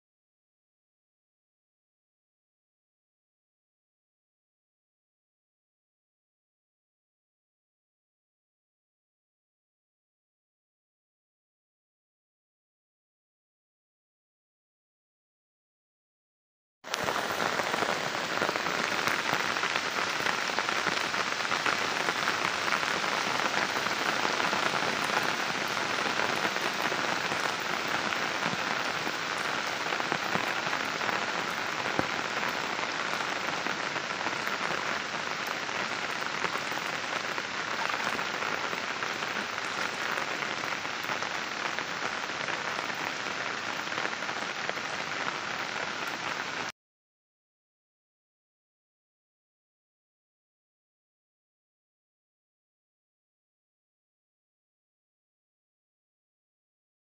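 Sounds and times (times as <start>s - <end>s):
heavy rain falling: 16.9s - 46.7s.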